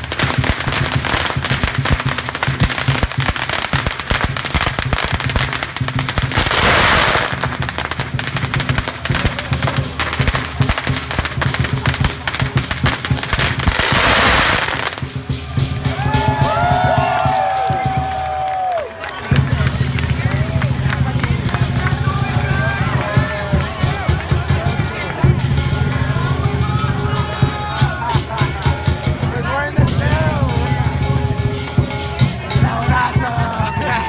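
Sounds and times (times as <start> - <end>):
firecrackers cracking: 0.0 - 22.1
drum beating: 0.0 - 34.0.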